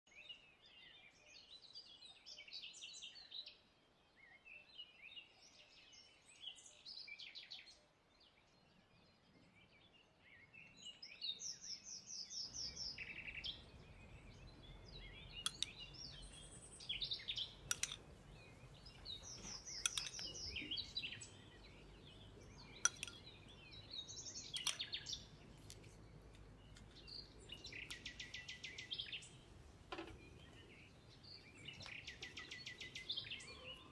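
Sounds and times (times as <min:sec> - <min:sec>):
small birds chirping: 0:00.0 - 0:33.9
sharp light clicks: 0:17.7 - 0:18.0.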